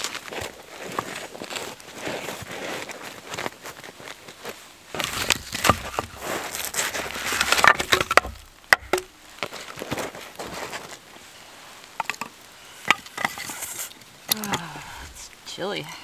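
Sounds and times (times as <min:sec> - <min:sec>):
rustling and crunching in snow: 0:00.0 - 0:08.5, 0:09.2 - 0:12.0
logs knocking together: 0:05.0 - 0:10.8, 0:11.9 - 0:15.2.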